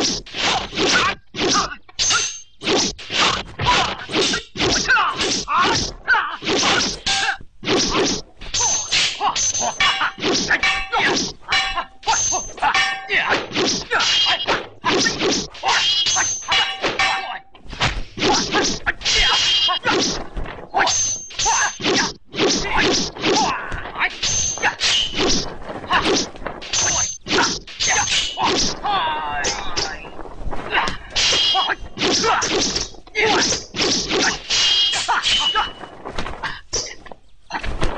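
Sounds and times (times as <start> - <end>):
swords clanging: 0.0 - 17.6, 18.2 - 20.2, 20.8 - 28.8, 31.1 - 35.9
metallic ring of clashing blades: 8.6 - 13.3, 15.0 - 17.5, 20.9 - 21.9, 24.1 - 25.2, 26.7 - 28.5
sharp whacks: 17.7 - 20.2.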